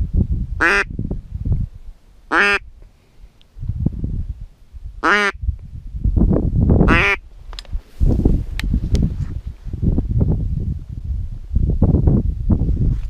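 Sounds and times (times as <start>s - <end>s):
low rumbling microphone noise: 0.0s - 13.0s
duck call quacks: 0.6s - 0.9s, 2.3s - 2.6s, 5.0s - 5.4s, 6.9s - 7.2s.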